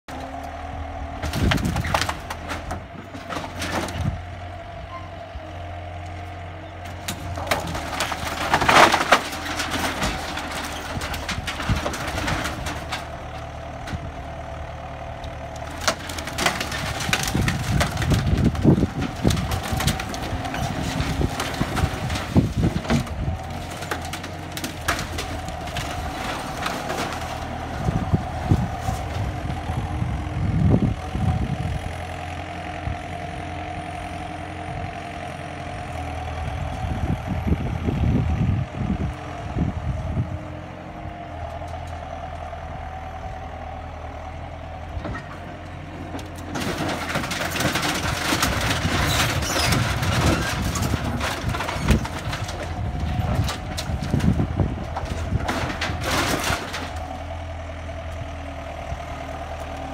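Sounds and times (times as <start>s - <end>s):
loader engine running: 0.0s - 59.9s
wood splintering and metal buckling: 0.1s - 30.1s, 44.2s - 59.9s.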